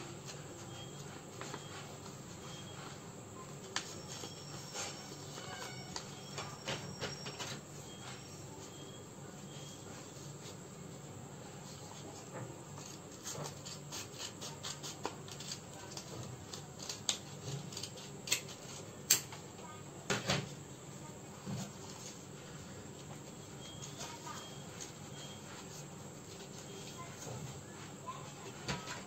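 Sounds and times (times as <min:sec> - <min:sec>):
paper being handled: 0:11.6 - 0:19.0
scissors snipping paper: 0:12.7 - 0:19.3.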